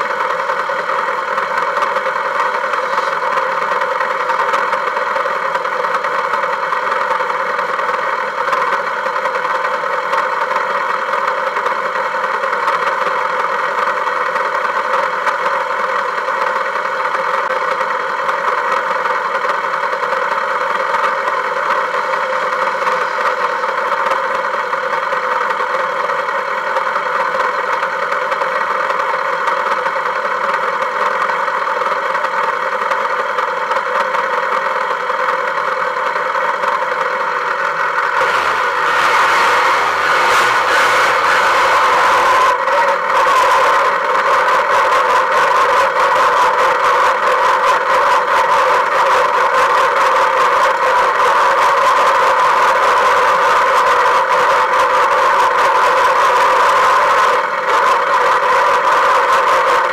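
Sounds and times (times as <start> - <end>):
engine droning steadily: 0.0 - 59.9.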